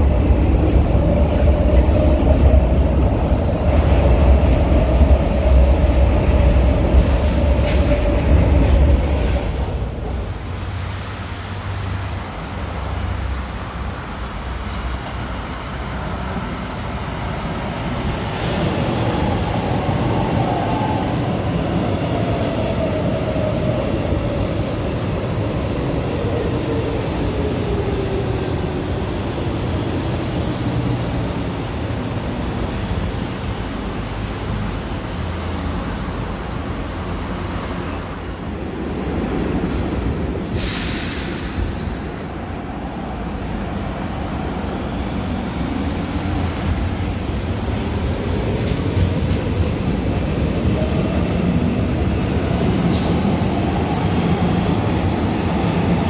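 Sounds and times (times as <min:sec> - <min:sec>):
short hiss: 0:40.6 - 0:42.2.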